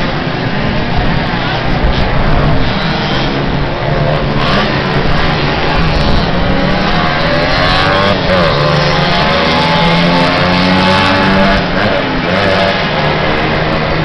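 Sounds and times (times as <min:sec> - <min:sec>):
small motorbike engines racing: 0:00.0 - 0:14.0.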